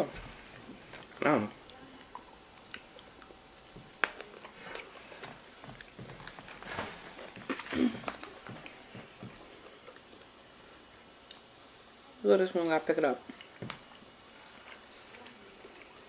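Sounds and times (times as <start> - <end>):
chewing: 0.9 - 10.3, 13.2 - 16.0.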